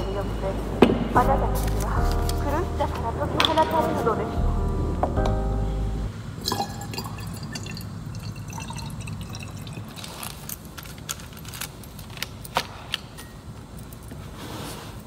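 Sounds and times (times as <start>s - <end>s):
water pouring into glass bottle: 6.4s - 10.4s.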